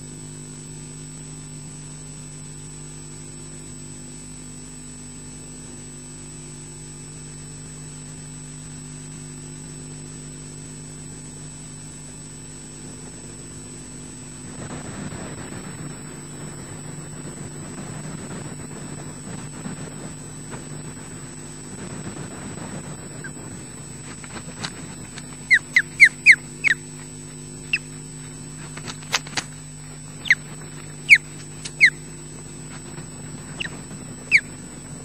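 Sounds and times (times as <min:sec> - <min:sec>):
steady electrical hum: 0:00.0 - 0:35.0.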